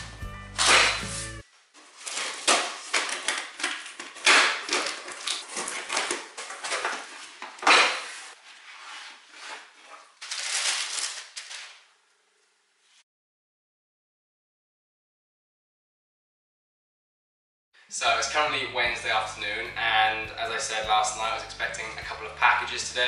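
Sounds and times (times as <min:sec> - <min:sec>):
tissue paper rustling: 0:00.6 - 0:12.0.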